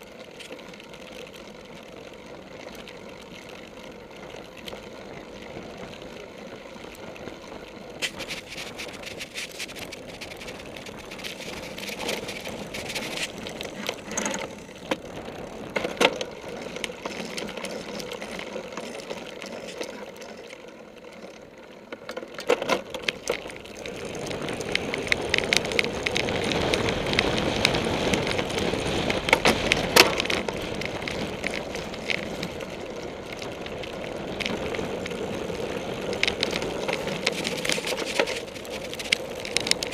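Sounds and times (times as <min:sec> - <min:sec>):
bike rattling over bumpy grass: 0:00.0 - 0:39.9.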